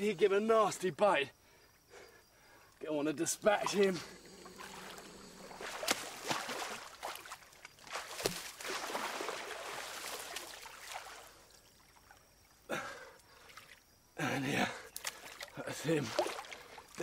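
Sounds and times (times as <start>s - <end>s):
water splashing and sloshing: 3.2s - 13.9s, 14.9s - 17.0s.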